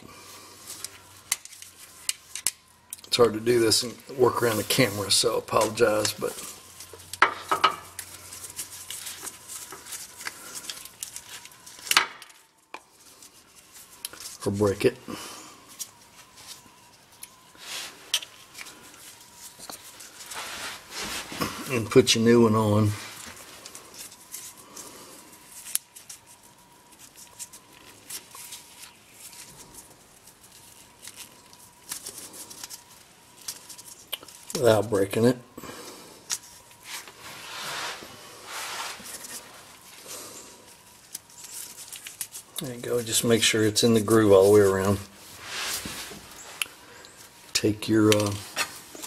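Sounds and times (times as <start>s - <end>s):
rubber rubbing: 36.8s - 39.8s.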